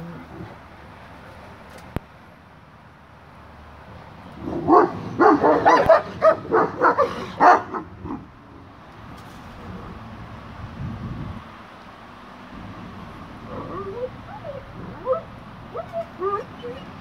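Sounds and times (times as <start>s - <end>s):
dogs barking: 4.4s - 8.3s, 13.5s - 17.0s.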